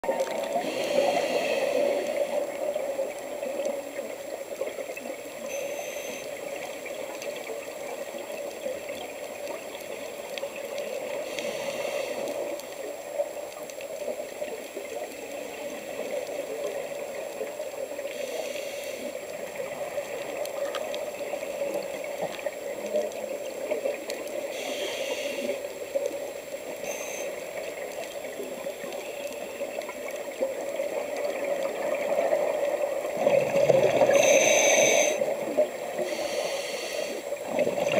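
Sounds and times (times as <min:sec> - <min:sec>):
muffled underwater rush: 0:00.0 - 0:37.9
diver regulator bubbles hissing: 0:33.2 - 0:37.9.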